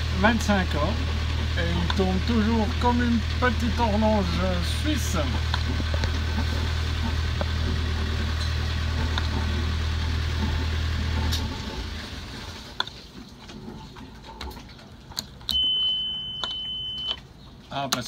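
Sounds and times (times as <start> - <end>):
diesel engine running: 0.0 - 13.9
steady high beep: 15.5 - 17.2.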